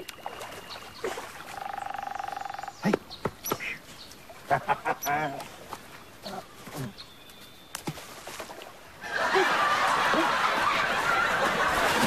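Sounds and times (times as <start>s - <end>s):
audience laughter: 9.0s - 12.0s.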